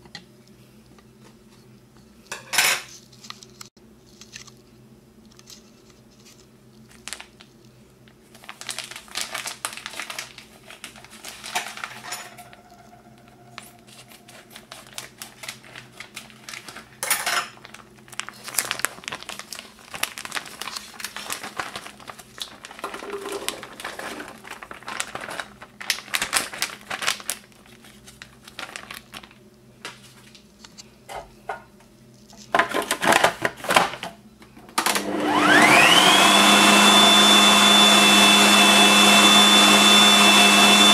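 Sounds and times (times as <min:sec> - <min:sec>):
plastic bag crinkling: 0:02.9 - 0:30.8
chickpeas rattling into bowl: 0:21.8 - 0:25.4
food processor motor whine: 0:22.8 - 0:24.4, 0:34.8 - 0:40.9
plastic bowl and lid clattering: 0:22.8 - 0:24.5.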